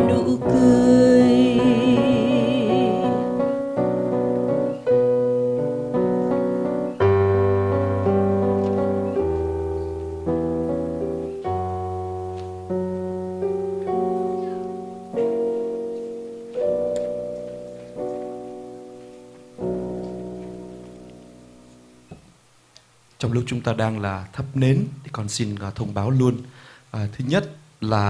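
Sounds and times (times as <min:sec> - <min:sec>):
piano playing slow hymn chords: 0:00.0 - 0:22.6.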